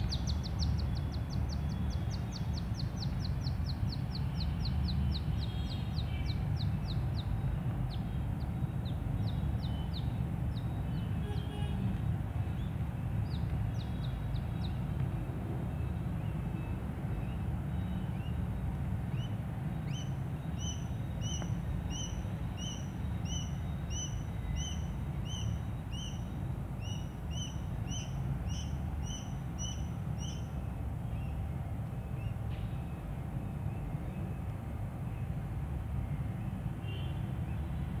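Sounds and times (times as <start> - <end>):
bird chirping: 19.1 - 30.5.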